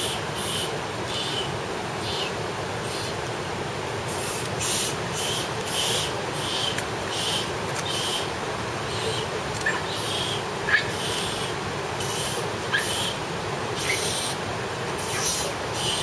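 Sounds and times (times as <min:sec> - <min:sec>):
running spring water: 0:00.0 - 0:16.0.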